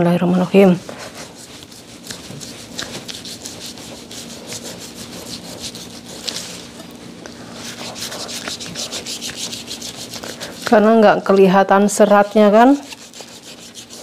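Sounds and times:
knife sawing through meat: 0:00.7 - 0:06.9, 0:07.5 - 0:10.8, 0:12.7 - 0:14.0.

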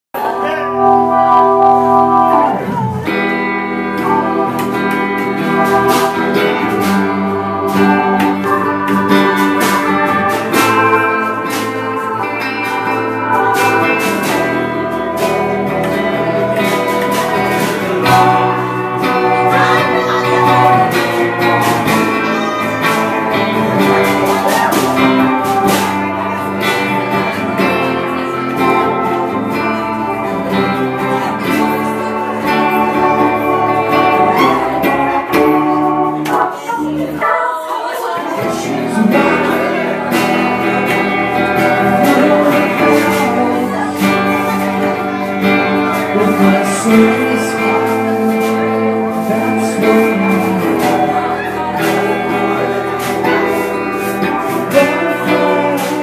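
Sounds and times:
small band playing live: 0:00.1 - 0:56.0
drum and cymbal hits: 0:00.2 - 0:36.5.

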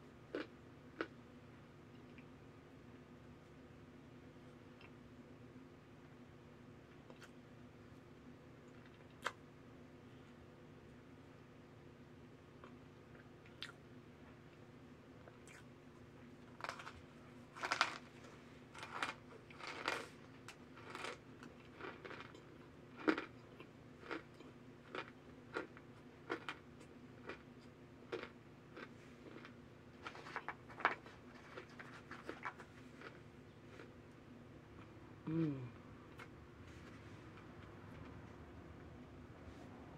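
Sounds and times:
crisp chewing crunches: 0:16.5 - 0:34.0.

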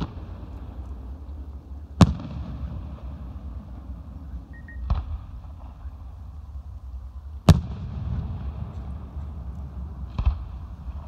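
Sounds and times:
low background rumble: 0:00.0 - 0:11.0
firework bursting with sharp bang: 0:02.0 - 0:04.1, 0:04.8 - 0:06.0, 0:07.4 - 0:09.2, 0:10.0 - 0:11.0.

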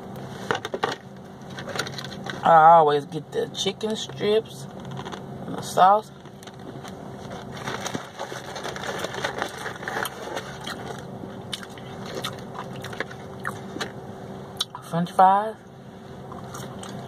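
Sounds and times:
chewing crispy food: 0:06.2 - 0:13.9, 0:16.3 - 0:17.0.

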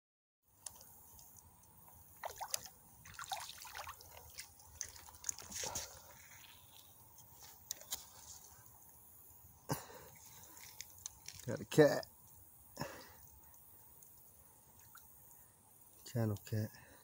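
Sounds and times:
water dripping: 0:00.6 - 0:06.0, 0:13.2 - 0:15.2
fish splashing in water: 0:02.2 - 0:05.8.

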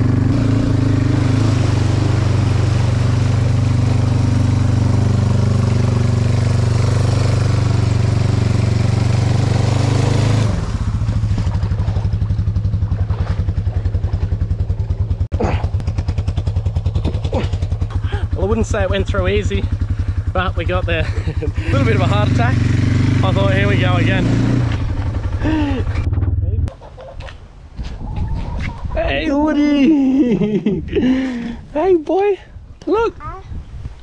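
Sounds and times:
quad bike engine: 0:00.0 - 0:27.2
churned water rushing: 0:00.3 - 0:14.4.

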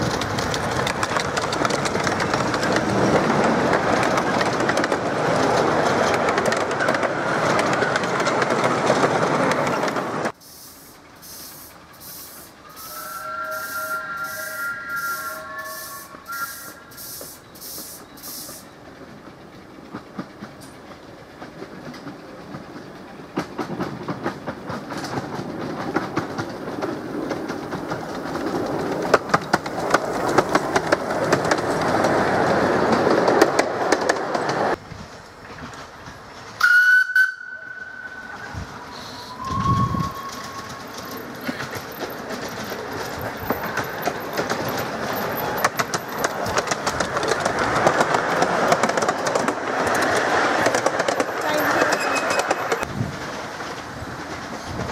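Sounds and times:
wheels clicking over rail joints: 0:00.0 - 0:10.4, 0:16.2 - 0:54.9
steam locomotive exhaust: 0:10.3 - 0:20.8, 0:35.9 - 0:42.1
train whistle blast: 0:12.6 - 0:17.2, 0:36.6 - 0:40.7.

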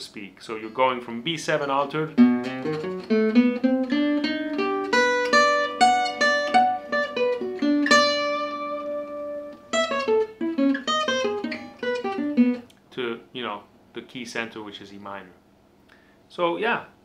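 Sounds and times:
acoustic guitar lick: 0:01.7 - 0:12.6.

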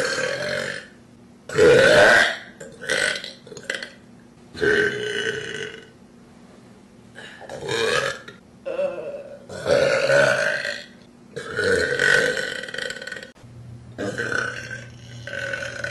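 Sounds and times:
woman burping loudly: 0:01.5 - 0:04.0, 0:07.4 - 0:13.4, 0:14.0 - 0:15.9.

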